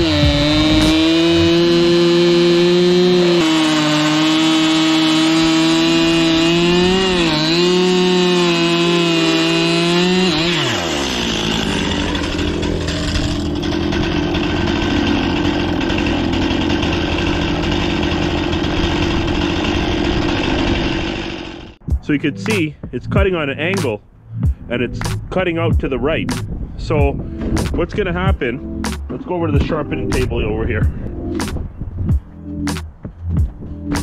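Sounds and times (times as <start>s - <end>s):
chainsaw cutting log: 0.0s - 21.8s, 27.4s - 28.2s
chainsaw engine idling: 0.0s - 21.8s.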